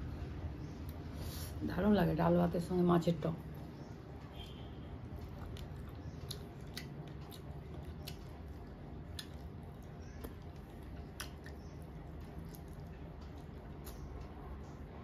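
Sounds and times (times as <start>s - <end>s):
steady low hum: 0.0s - 15.0s
fingers squishing rice and curry: 4.4s - 14.3s
chewing: 5.0s - 14.3s.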